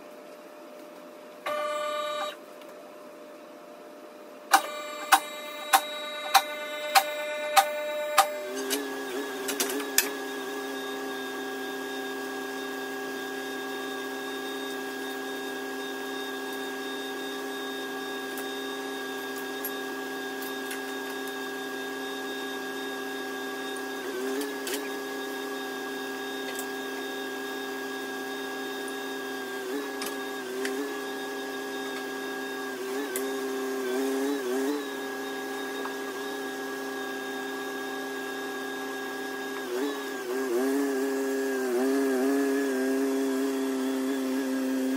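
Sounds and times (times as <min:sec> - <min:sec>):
forklift whining: 0:01.4 - 0:02.4, 0:04.5 - 0:19.7.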